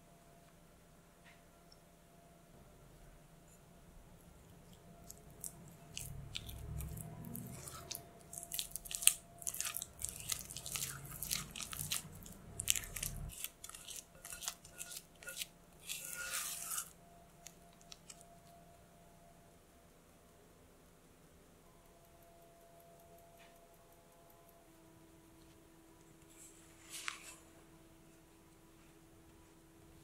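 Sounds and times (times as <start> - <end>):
spatula scraping glass bowl: 5.9 - 17.0.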